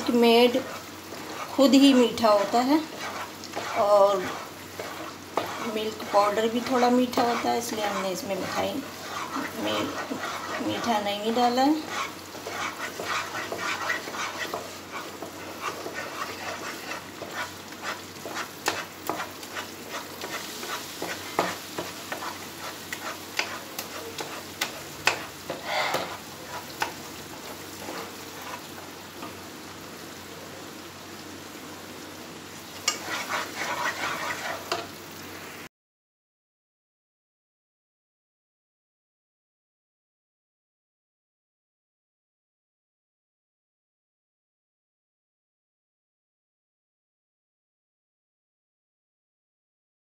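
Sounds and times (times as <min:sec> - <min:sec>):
wooden spatula scraping pan: 0:00.0 - 0:29.4, 0:32.8 - 0:34.9
soft sizzle of cooking: 0:00.0 - 0:35.7.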